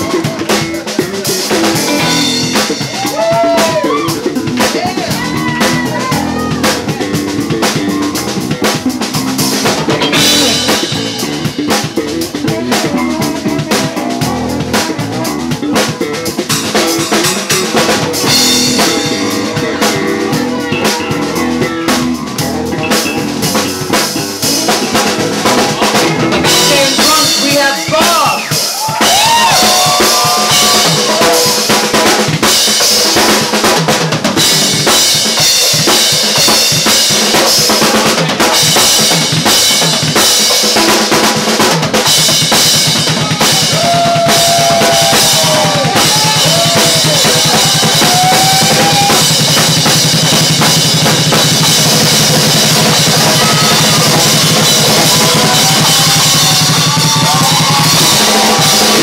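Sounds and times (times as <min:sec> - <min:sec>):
drum kit: 0:00.0 - 0:59.0
electric bass: 0:00.0 - 0:59.0
sliding melodic line: 0:01.6 - 0:02.9.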